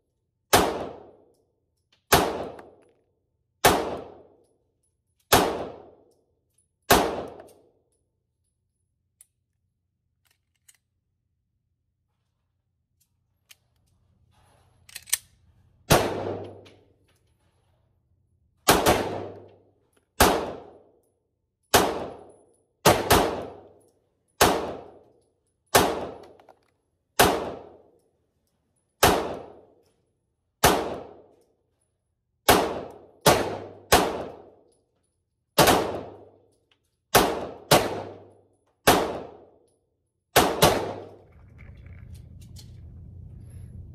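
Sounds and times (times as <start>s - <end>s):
pistol shots with echo: 0.5s - 1.3s, 2.1s - 2.8s, 3.6s - 4.4s, 5.3s - 6.1s, 6.9s - 7.5s, 15.9s - 16.6s, 18.7s - 19.5s, 20.2s - 20.9s, 21.7s - 23.7s, 24.4s - 25.0s, 25.7s - 26.3s, 27.2s - 27.9s, 29.0s - 29.7s, 30.6s - 31.3s, 32.4s - 34.6s, 35.6s - 36.3s, 37.1s - 39.6s, 40.3s - 41.2s.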